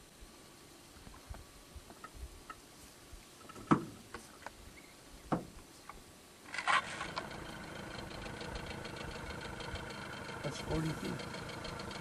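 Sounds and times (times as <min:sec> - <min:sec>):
steady motor drone: 0:07.0 - 0:12.0.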